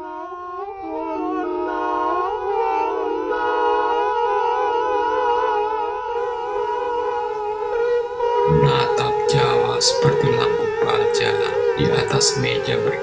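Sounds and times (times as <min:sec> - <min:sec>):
ambient music with sliding tones: 0:05.6 - 0:13.0.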